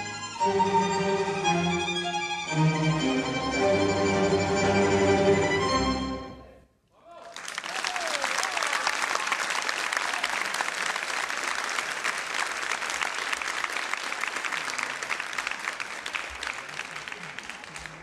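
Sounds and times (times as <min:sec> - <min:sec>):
music: 0:00.0 - 0:06.6
audience applauding: 0:07.1 - 0:18.0.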